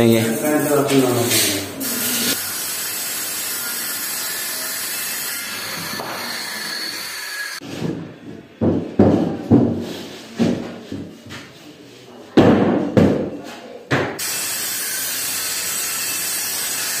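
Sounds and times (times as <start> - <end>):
circular saw cutting wood: 0.0 - 7.6, 14.2 - 17.0.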